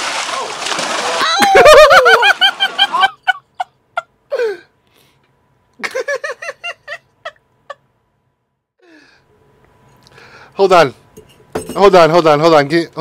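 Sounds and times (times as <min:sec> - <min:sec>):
man laughing: 0:01.4 - 0:04.6, 0:05.8 - 0:07.8.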